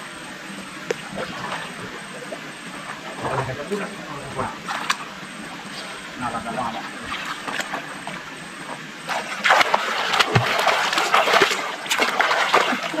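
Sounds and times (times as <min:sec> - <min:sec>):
water splashing from swimming: 0:00.9 - 0:03.5, 0:06.7 - 0:13.0.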